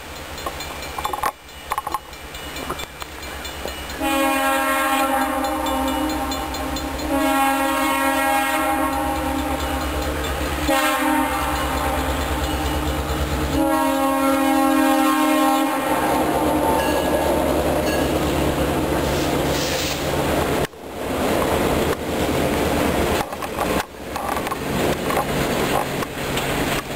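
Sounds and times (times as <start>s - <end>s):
locomotive air horn blasts: 4.0s - 9.6s, 10.6s - 12.1s, 13.5s - 17.5s
freight cars rumbling and clattering: 20.6s - 26.9s.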